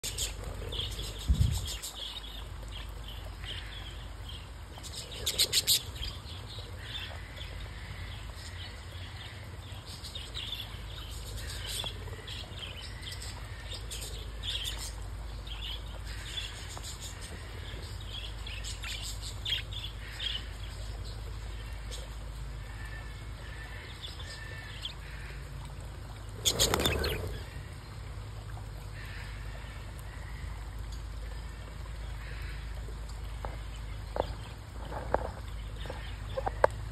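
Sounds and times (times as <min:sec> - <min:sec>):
budgerigars chirping: 0:26.4 - 0:27.4.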